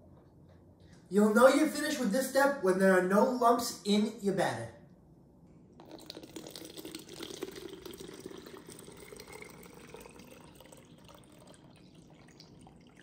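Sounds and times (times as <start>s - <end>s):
liquid trickling into bottle: 5.8s - 13.0s.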